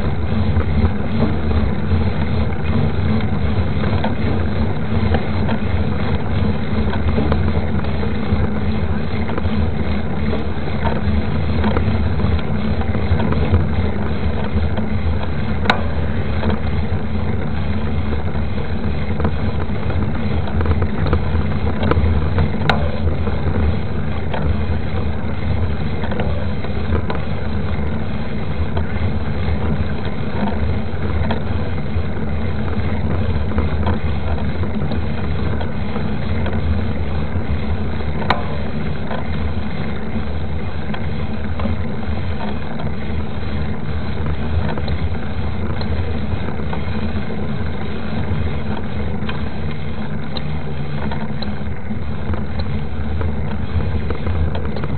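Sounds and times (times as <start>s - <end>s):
bike clicks and rattles: 0.0s - 28.0s, 28.6s - 54.9s
tyre humming on asphalt: 0.0s - 54.9s
wind rumbling on microphone: 0.0s - 54.9s.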